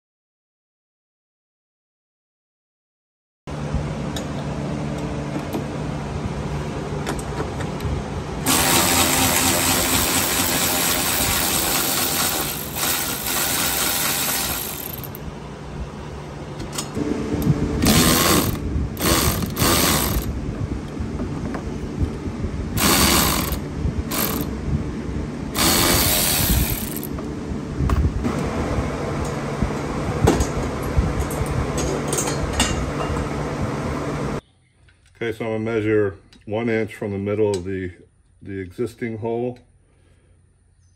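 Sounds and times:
electric ratchet running: 8.4s - 15.2s, 17.8s - 20.4s, 22.8s - 24.5s, 25.5s - 27.1s.

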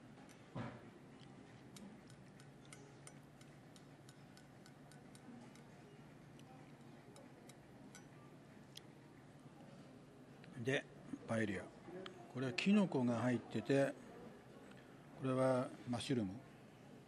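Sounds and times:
chopsticks clicking on plate: 1.2s - 5.7s, 6.4s - 8.1s.

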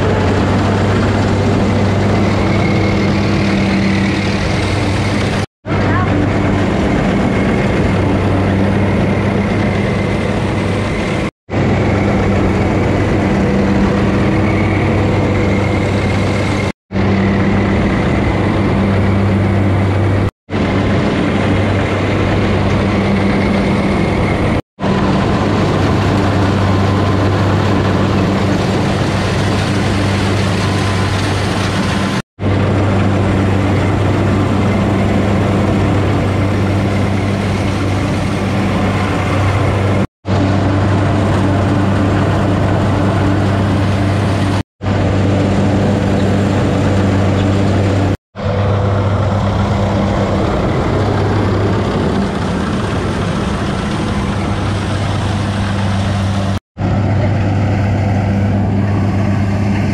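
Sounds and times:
combine harvester engine running: 0.0s - 59.9s
machinery noise: 0.0s - 59.9s.

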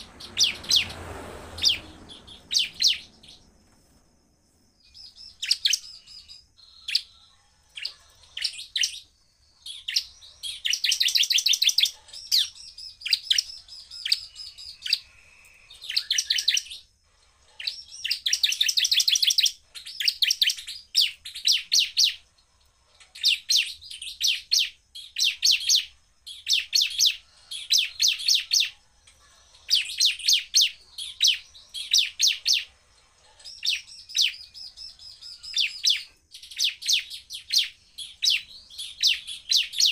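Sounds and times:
bird singing rapid chip notes: 0.0s - 4.0s, 4.7s - 17.0s.

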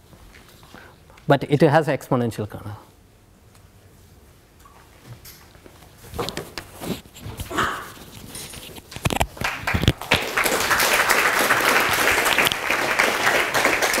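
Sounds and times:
audience applauding: 9.4s - 14.0s.

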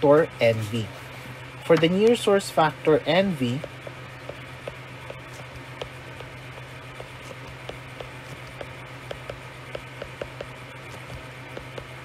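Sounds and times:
electrical hum and hiss: 0.0s - 12.0s
stylus tapping on tablet: 3.5s - 12.0s.

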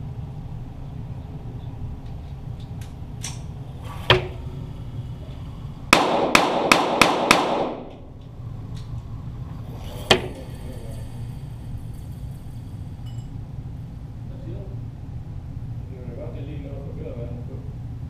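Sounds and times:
pistol shots: 5.9s - 8.0s.

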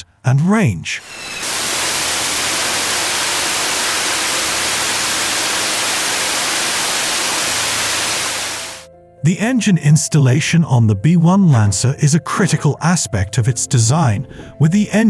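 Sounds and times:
jet engine roaring: 1.0s - 8.9s.

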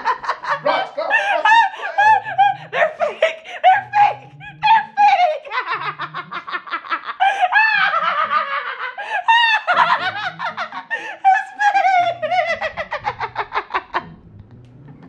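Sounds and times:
woman laughing hard: 0.0s - 14.0s.

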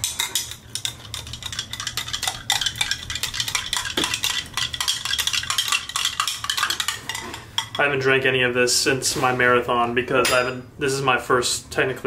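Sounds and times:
metal spoon clinking against glass: 0.0s - 7.8s.

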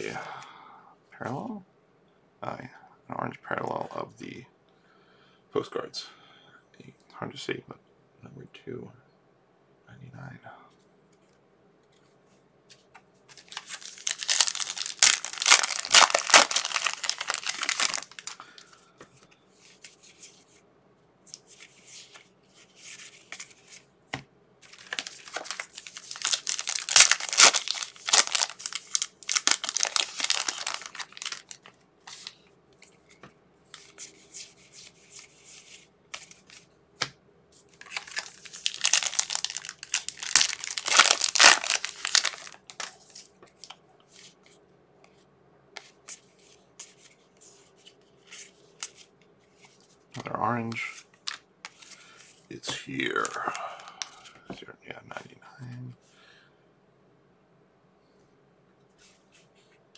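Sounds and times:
foil wrappers crinkling: 13.3s - 18.8s, 24.6s - 32.4s, 37.8s - 44.4s, 50.7s - 54.3s.

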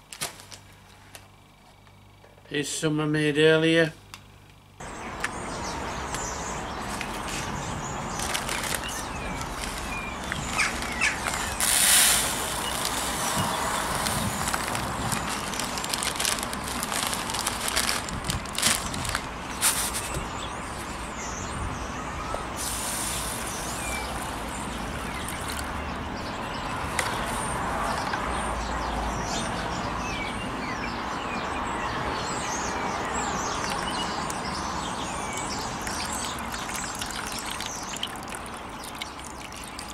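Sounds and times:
birds chirping: 4.8s - 39.9s
plastic bag rustling: 8.1s - 20.3s
pellets scooped by hand: 10.6s - 20.2s
water splashing over pellets: 35.8s - 39.9s.

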